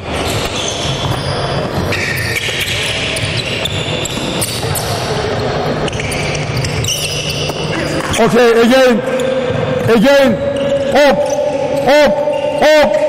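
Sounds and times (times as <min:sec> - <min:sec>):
shoes squeaking on court: 0:00.0 - 0:08.5.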